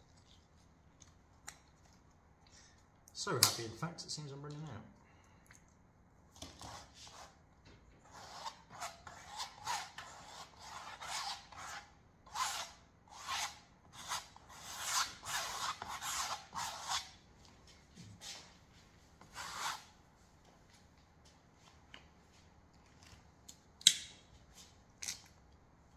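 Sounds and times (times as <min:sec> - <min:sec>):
palette knife scraping canvas: 0:08.0 - 0:17.2, 0:19.3 - 0:19.9.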